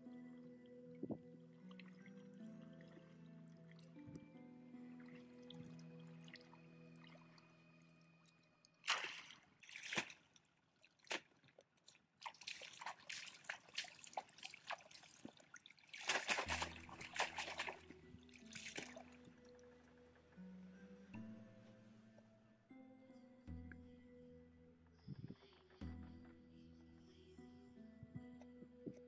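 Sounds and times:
soft background music: 0.0s - 10.7s, 12.4s - 29.0s
muddy water splashing: 8.8s - 19.7s.

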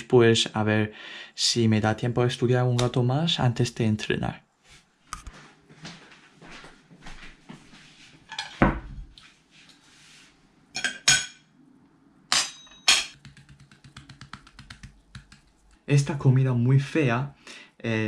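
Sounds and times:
cutlery clinking on glass: 8.3s - 8.6s, 10.8s - 11.5s, 12.3s - 13.2s
spice jar ticking: 13.2s - 15.9s.

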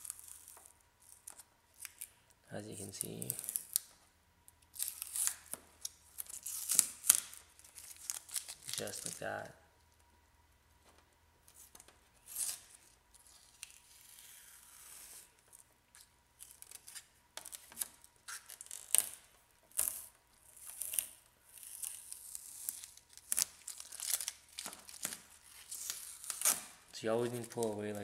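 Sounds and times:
masking tape ripping: 0.0s - 2.1s, 2.7s - 3.9s, 4.7s - 9.4s, 11.6s - 28.0s
tape crumpled in hand: 0.0s - 4.0s, 4.7s - 9.9s, 11.5s - 28.0s.

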